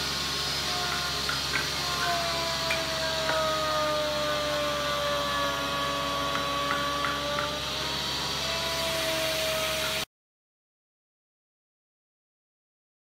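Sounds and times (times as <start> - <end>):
power tool motor whining: 0.0 - 10.1.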